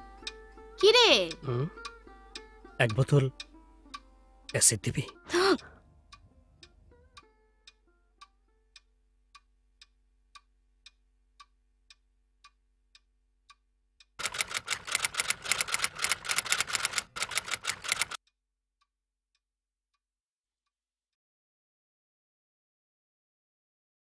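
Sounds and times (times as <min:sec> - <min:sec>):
clock ticking: 0:00.2 - 0:06.8, 0:07.7 - 0:18.2
typewriter keys clattering: 0:14.2 - 0:18.2.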